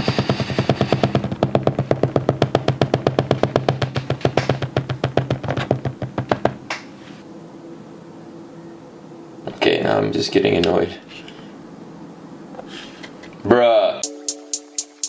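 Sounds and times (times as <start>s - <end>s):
fast drum beat: 0.0s - 6.5s.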